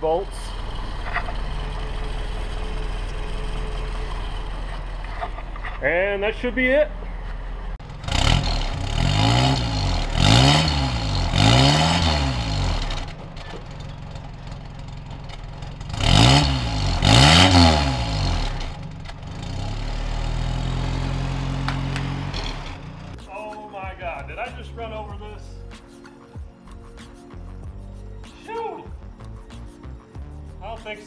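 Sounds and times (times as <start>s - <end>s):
pickup engine revving: 0.0s - 5.8s, 7.5s - 23.2s.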